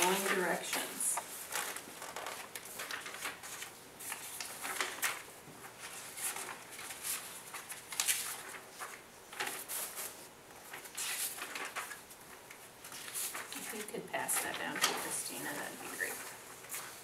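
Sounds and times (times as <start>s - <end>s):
paper rustling: 0.0s - 17.0s.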